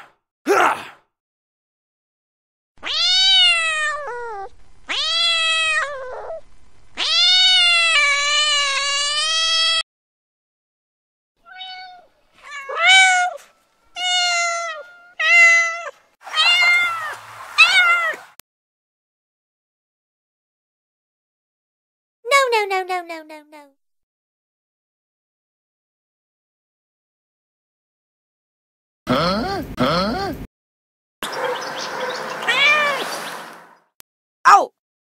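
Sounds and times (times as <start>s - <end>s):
cat meowing: 2.8s - 6.4s, 7.0s - 9.8s, 11.4s - 18.3s, 32.4s - 33.1s.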